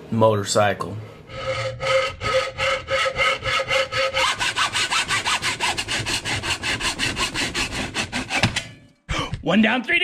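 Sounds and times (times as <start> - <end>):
hacksaw cutting plastic pipe: 1.3 - 8.8.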